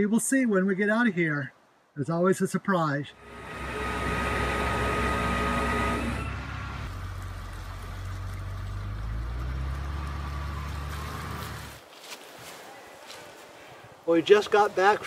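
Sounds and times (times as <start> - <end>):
high steady whine: 3.2 - 6.9
vehicle engine running: 3.2 - 11.8.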